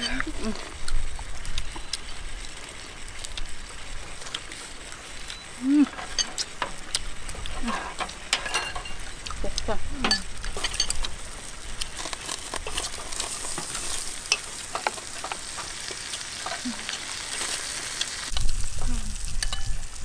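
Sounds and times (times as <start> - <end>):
meat sizzling in a pan: 0.0 - 20.0
tongs clicking against pan: 5.3 - 11.2, 11.8 - 19.8.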